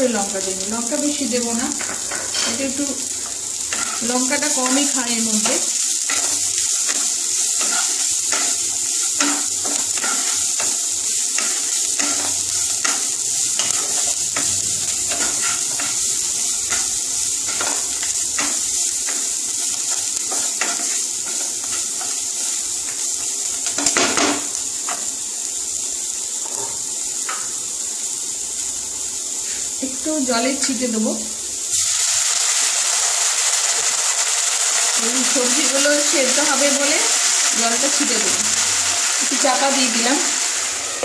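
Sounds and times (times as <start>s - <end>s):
vegetables sizzling in oil: 0.0s - 41.0s
spatula scraping and knocking pan: 1.7s - 16.1s, 16.7s - 25.1s.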